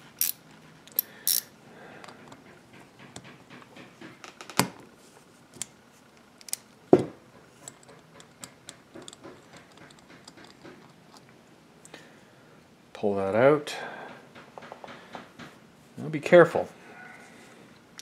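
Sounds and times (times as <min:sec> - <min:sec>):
socket ratchet clicking: 0:00.2 - 0:01.5.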